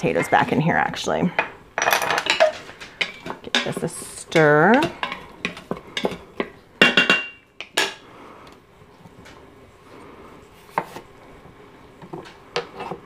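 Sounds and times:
wooden spatula knocking on metal pot: 0:03.0 - 0:07.7.

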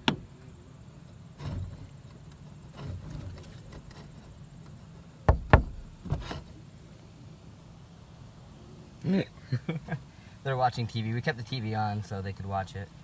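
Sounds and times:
sharp knocks: 0:05.3 - 0:06.4.

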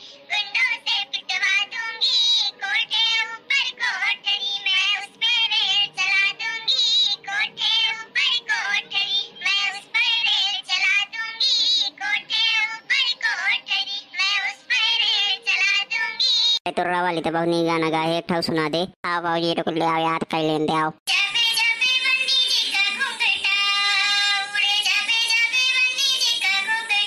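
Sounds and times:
high-pitched cartoon voice singing: 0:19.1 - 0:27.0.

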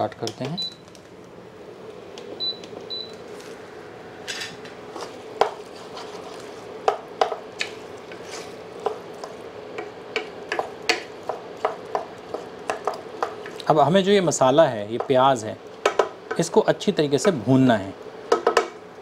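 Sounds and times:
wooden spatula scraping a pot: 0:04.9 - 0:06.7, 0:07.6 - 0:09.3.

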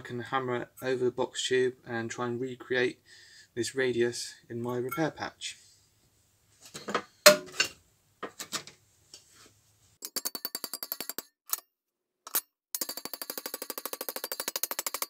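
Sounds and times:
metal knocks and clinks: 0:10.0 - 0:11.3.

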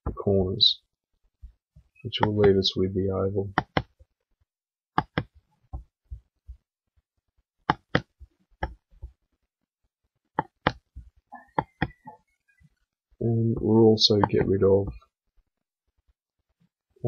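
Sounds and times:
computer mouse button clicking: 0:05.0 - 0:05.3.

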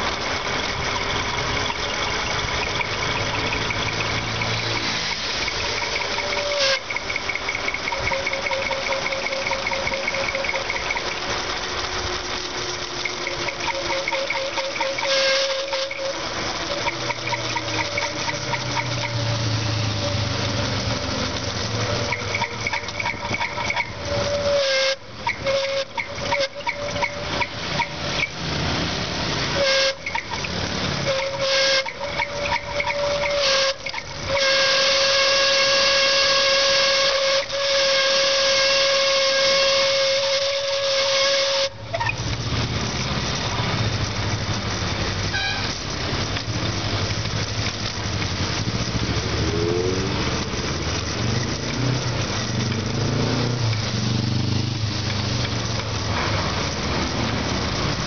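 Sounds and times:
road and traffic noise: 0:00.0 - 0:58.0
high-pitched whistling whine: 0:00.7 - 0:20.3.

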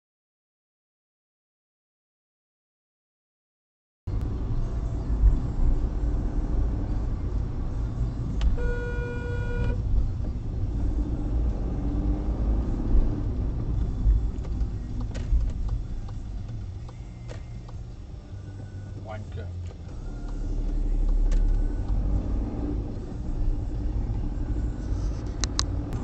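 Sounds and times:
car road and engine rumble: 0:04.1 - 0:26.0
car horn: 0:08.5 - 0:09.8.

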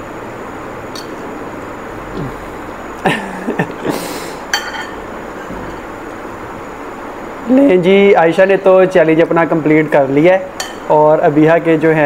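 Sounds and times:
steady background hiss: 0:00.0 - 0:12.0
fork clinking against plate: 0:01.0 - 0:01.2, 0:04.5 - 0:05.8, 0:10.6 - 0:10.9.

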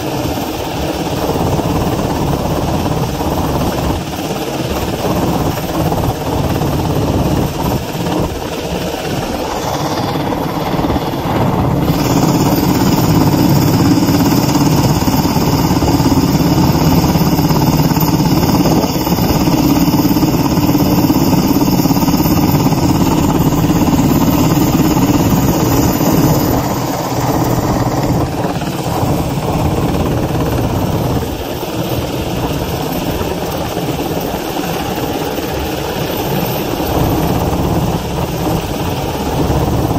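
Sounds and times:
helicopter rotor and engine: 0:00.0 - 0:39.9.

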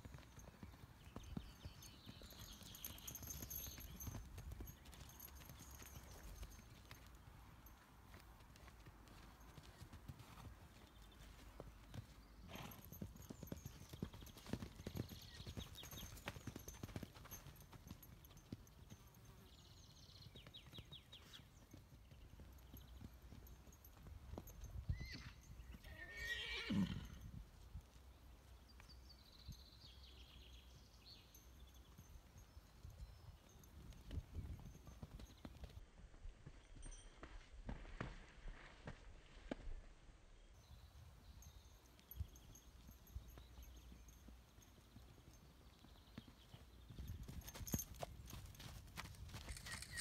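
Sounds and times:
soft hoofbeats on grass: 0:00.0 - 0:39.9, 0:40.6 - 0:50.0
horse whinny: 0:24.9 - 0:27.2.

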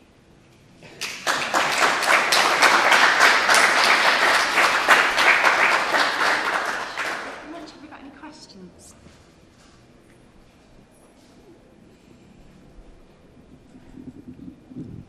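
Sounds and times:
audience applause: 0:00.8 - 0:07.6.

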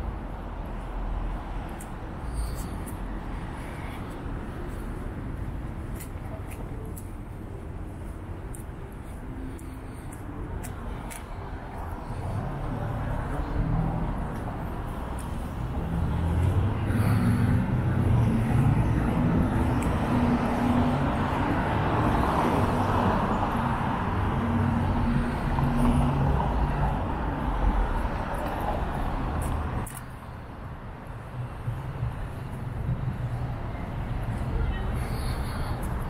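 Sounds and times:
tyre and road noise: 0:00.0 - 0:36.0.

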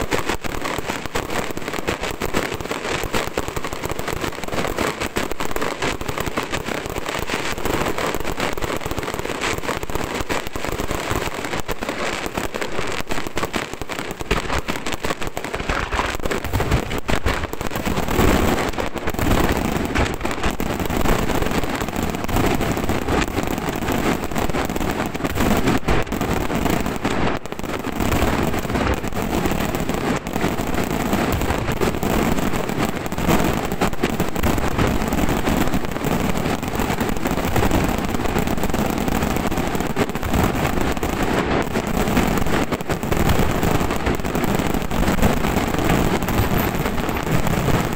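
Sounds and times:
fireworks crackling and banging: 0:00.0 - 0:47.9
deep firework bangs: 0:13.2 - 0:47.9.

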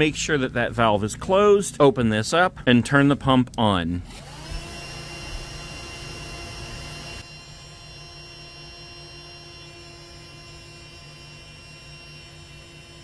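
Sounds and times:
electric air pump humming: 0:04.0 - 0:13.0.

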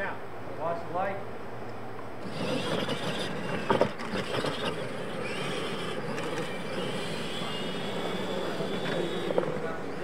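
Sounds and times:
motor and gear whine: 0:02.2 - 0:10.0.

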